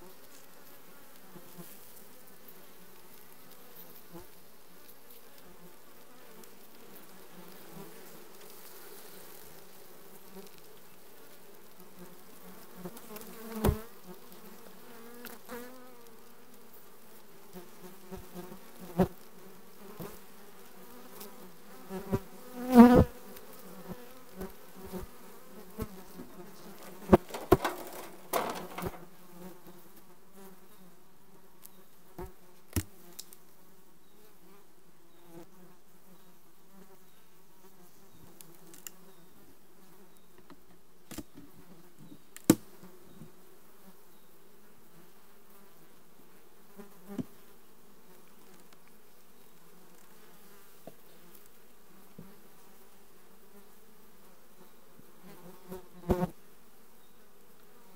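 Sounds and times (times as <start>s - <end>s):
honeybees buzzing: 4.9s - 29.4s
hive tool clicks and knocks: 26.8s - 29.0s.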